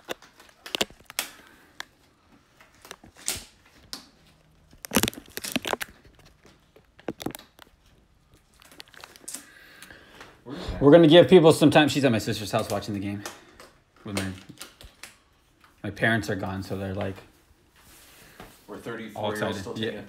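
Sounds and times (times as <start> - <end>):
crinkling: 0.0 - 10.3, 12.5 - 15.9.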